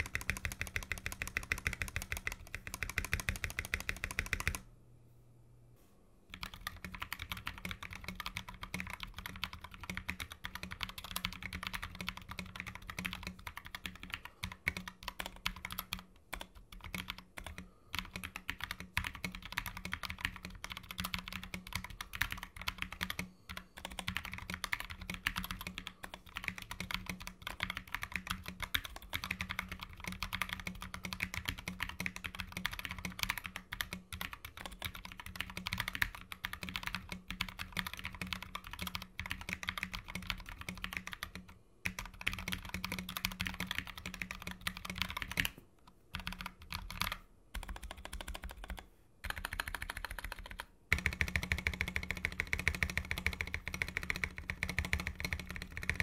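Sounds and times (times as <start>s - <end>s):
mechanical keyboard typing: 0.0s - 4.6s, 6.3s - 56.0s.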